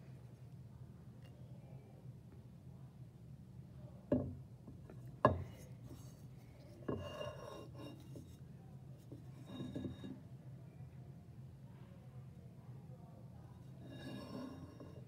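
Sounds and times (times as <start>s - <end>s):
skull scraping on benchtop: 4.9s - 10.2s, 13.6s - 15.0s.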